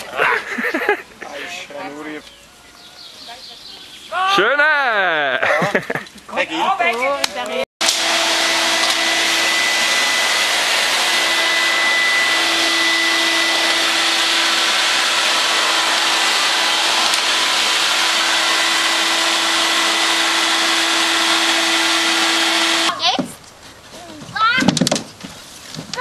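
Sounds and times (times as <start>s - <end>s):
vacuum cleaner running: 7.8s - 23.0s.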